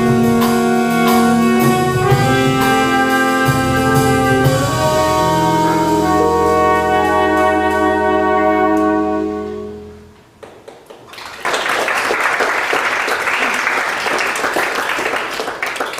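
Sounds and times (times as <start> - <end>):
jazz band holding final chord: 0.0 - 10.2
audience applause: 10.4 - 15.9.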